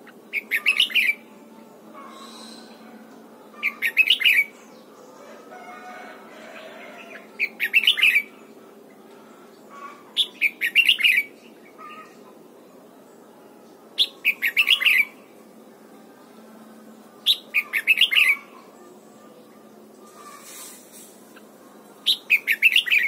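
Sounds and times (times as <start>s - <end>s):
bird warbling song: 0.0s - 1.3s, 2.0s - 5.4s, 6.4s - 12.4s, 14.0s - 15.4s, 17.1s - 23.0s.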